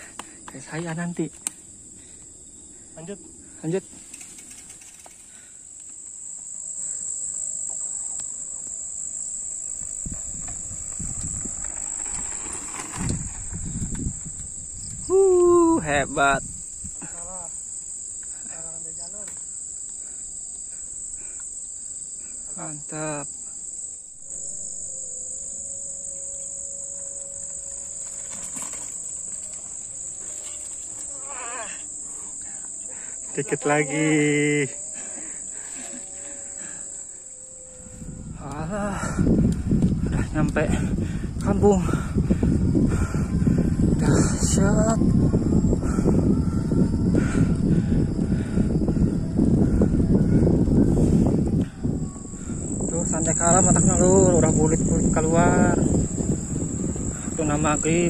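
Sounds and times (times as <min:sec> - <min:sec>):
bike rolling on dirt trail: 0:00.0 - 0:15.1, 0:24.2 - 0:37.2, 0:37.8 - 0:58.0
insect chirring: 0:00.0 - 0:58.0
short wavering call: 0:24.1 - 0:30.6.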